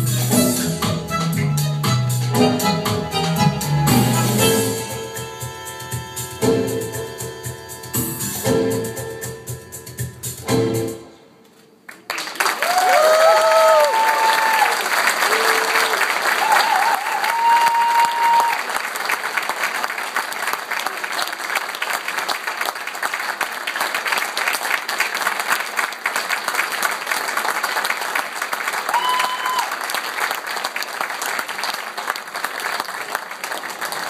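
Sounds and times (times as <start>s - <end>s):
audience applauding: 11.9s - 34.0s.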